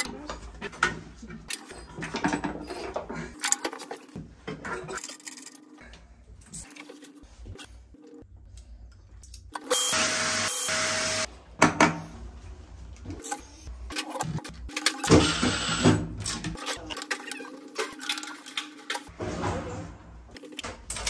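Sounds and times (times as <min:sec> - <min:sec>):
power tool running: 0:09.7 - 0:11.3.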